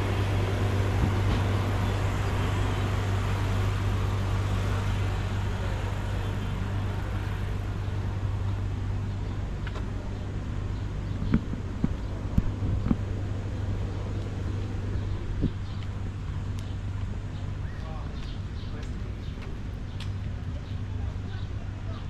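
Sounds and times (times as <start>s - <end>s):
vehicle running: 0.0s - 22.0s.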